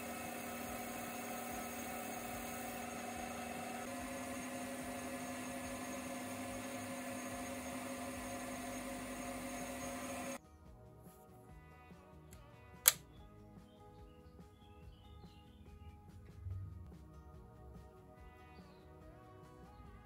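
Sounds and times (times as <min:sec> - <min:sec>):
lathe motor hum and whine: 0:00.0 - 0:10.4.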